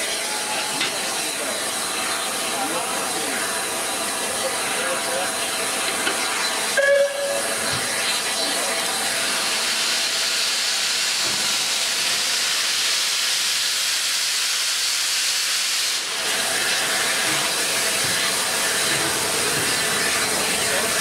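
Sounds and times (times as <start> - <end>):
steam hissing from locomotive: 0.0 - 21.0.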